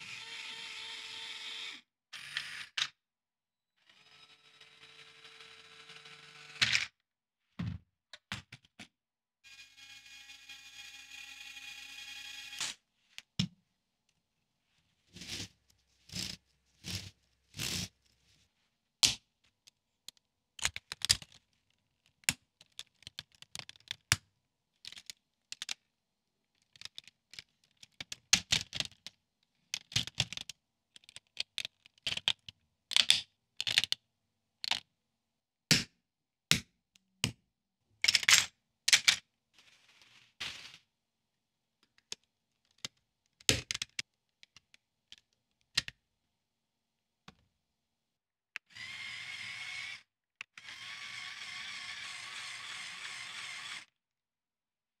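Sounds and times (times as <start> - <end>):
plastic parts clicking and clattering: 19.0 - 34.0, 34.6 - 34.9, 38.0 - 39.2, 41.8 - 46.0.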